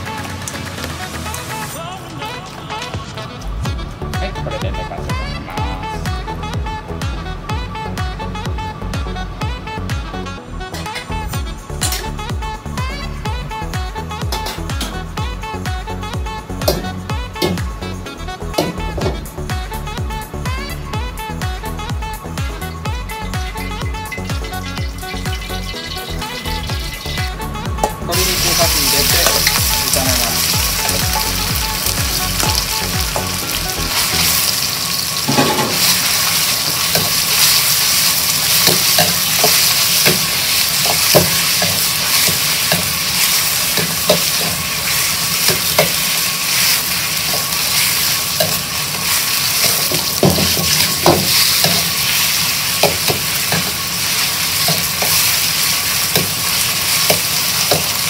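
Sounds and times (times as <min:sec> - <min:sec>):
chicken sizzling in hot oil: 0:22.8 - 0:58.0
metal ladle clinking and scraping wok: 0:24.0 - 0:31.4, 0:33.1 - 0:58.0.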